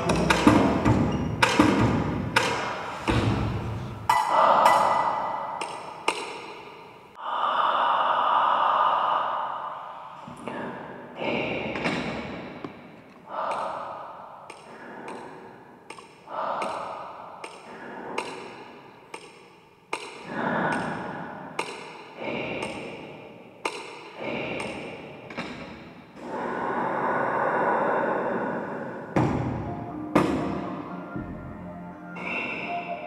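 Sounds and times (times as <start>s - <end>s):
ringing tone: 29.6s - 33.0s.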